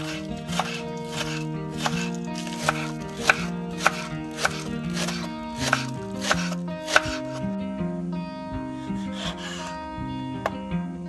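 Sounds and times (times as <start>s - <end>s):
background music: 0.0s - 11.0s
knife chopping on wooden board: 0.1s - 7.4s.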